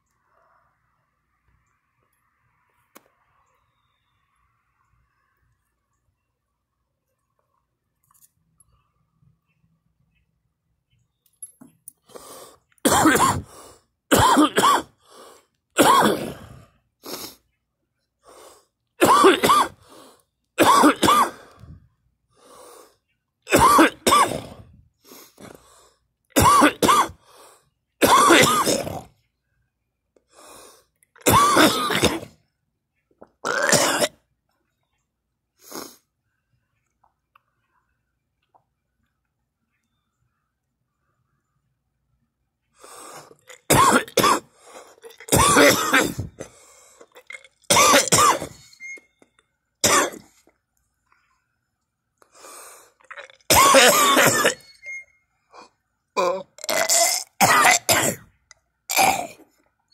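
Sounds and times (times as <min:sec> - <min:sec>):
person coughing: 0:12.9 - 0:13.5, 0:14.1 - 0:14.9, 0:15.8 - 0:16.5, 0:19.0 - 0:19.8, 0:20.6 - 0:21.5, 0:23.5 - 0:24.6, 0:26.4 - 0:27.2, 0:28.0 - 0:29.1, 0:31.3 - 0:32.3, 0:33.5 - 0:34.2, 0:43.7 - 0:44.5, 0:45.3 - 0:46.5, 0:47.7 - 0:48.6, 0:49.8 - 0:50.3, 0:53.5 - 0:54.7, 0:56.7 - 0:58.3, 0:58.9 - 0:59.4
person breathing: 0:46.3 - 0:47.1, 0:52.2 - 0:53.0.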